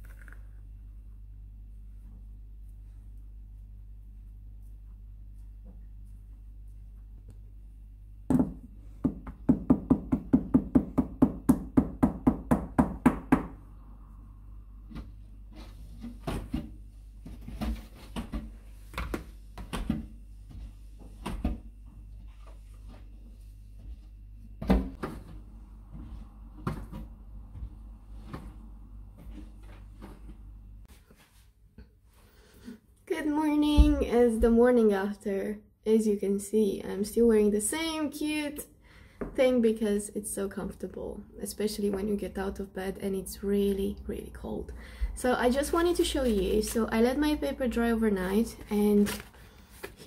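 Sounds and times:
steady low hum: 0.0 - 37.4
knocks and thumps: 33.6 - 34.6.

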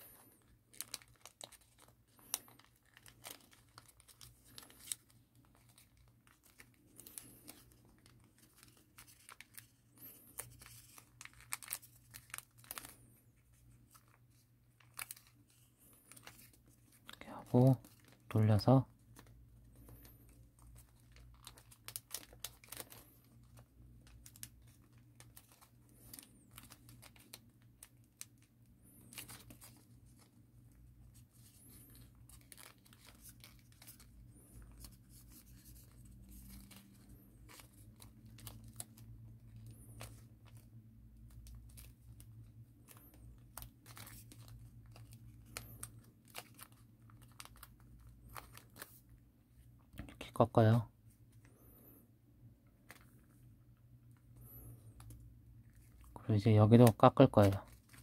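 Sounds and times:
paper rustling and crinkling: 0.0 - 52.0, 52.6 - 58.0.

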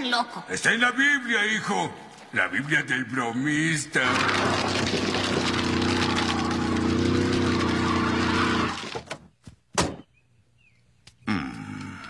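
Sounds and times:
cartoon car engine revving: 4.0 - 9.0
wheels spinning in mud: 4.0 - 9.0.

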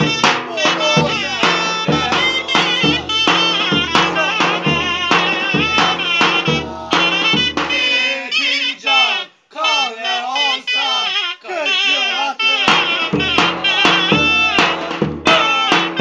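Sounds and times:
drum and shawm folk music: 0.0 - 8.9, 10.4 - 16.0
man singing unaccompanied: 0.0 - 16.0.

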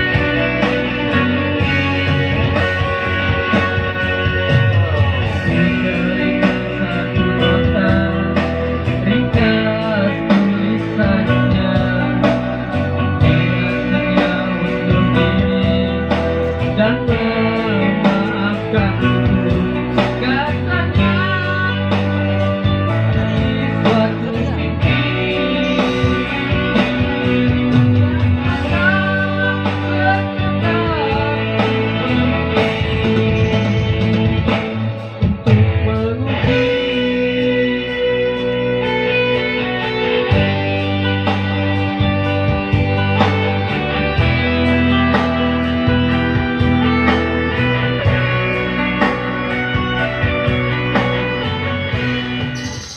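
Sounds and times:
man singing into a microphone: 0.0 - 50.3
keyboard music through speakers: 0.0 - 52.9.

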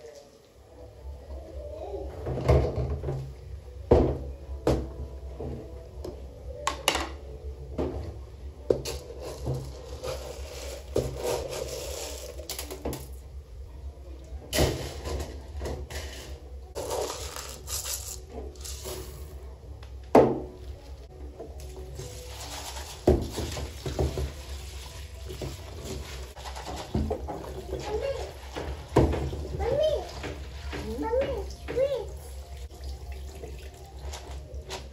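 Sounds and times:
pots and utensils clattering: 8.7 - 13.1, 14.5 - 19.4, 21.9 - 24.5, 25.2 - 31.9.

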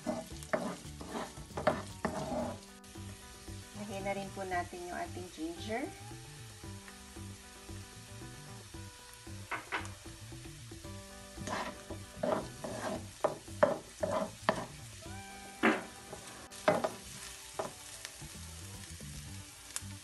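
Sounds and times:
wooden spatula scraping wok: 0.0 - 5.7, 10.9 - 20.0
vegetables sizzling in oil: 0.0 - 20.0.

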